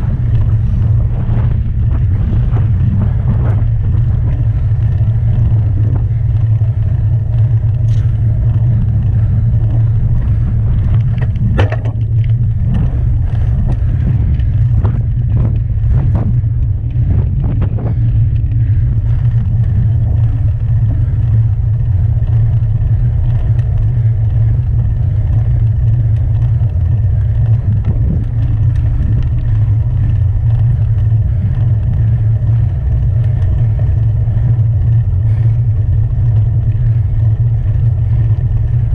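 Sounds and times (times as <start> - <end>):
tyre noise on asphalt: 0.0 - 38.9
wind buffeting microphone: 0.0 - 38.9
sharp knocks and rattles: 10.7 - 18.0.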